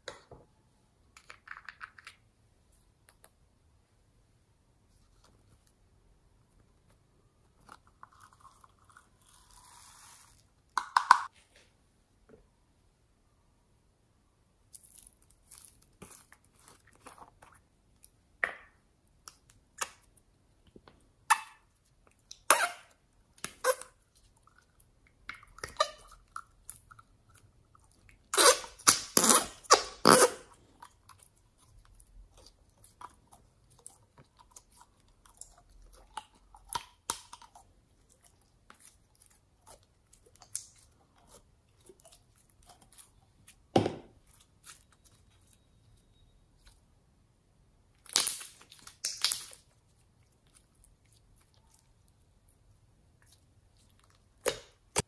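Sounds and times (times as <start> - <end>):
slime squelching and popping: 23.3 - 45.6, 47.9 - 55.0.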